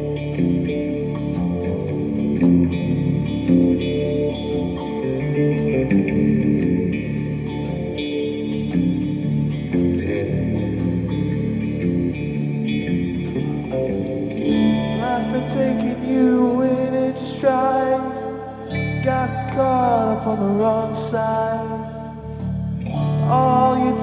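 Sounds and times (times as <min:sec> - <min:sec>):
rock band playing live: 0:00.0 - 0:24.0
man singing: 0:14.9 - 0:24.0.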